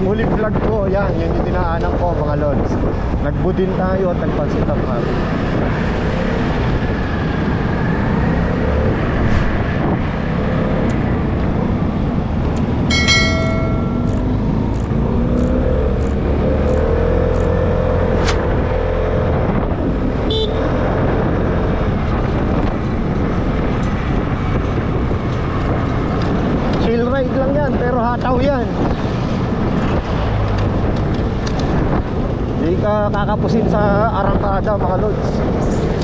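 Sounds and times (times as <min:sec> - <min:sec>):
road and wind noise: 0:00.0 - 0:36.0
vehicle horn toot: 0:20.3 - 0:20.6.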